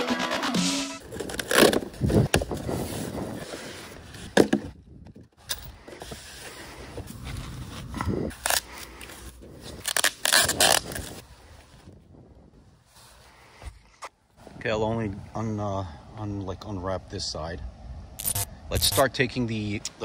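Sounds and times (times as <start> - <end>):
cardboard rustling and scraping: 1.0 - 4.8.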